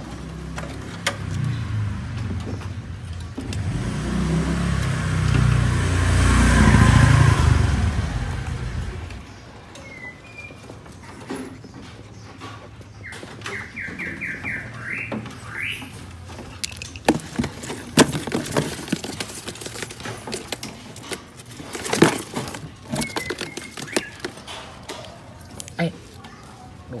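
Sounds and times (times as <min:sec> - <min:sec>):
songbird chirping: 0:06.8 - 0:27.0
birds fluttering against cage: 0:10.1 - 0:26.3.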